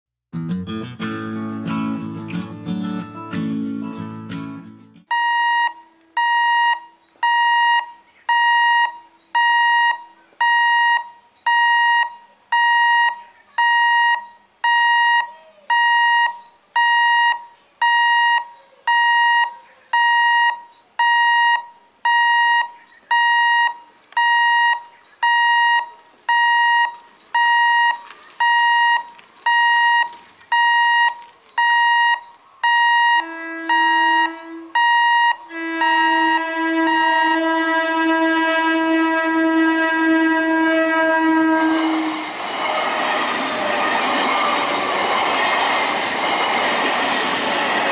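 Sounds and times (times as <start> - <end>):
level crossing alarm beeping: 5.1 - 38.4.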